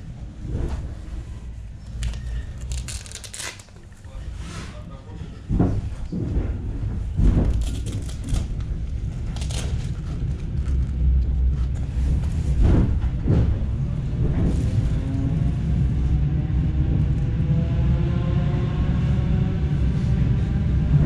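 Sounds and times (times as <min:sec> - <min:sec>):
electric train rumble: 0:00.0 - 0:21.0
thuds: 0:05.5 - 0:08.0, 0:12.3 - 0:14.8.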